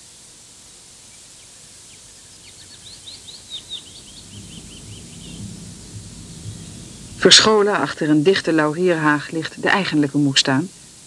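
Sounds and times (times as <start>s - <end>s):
tape hiss: 0.0s - 11.0s
songbird chirping: 1.1s - 9.9s.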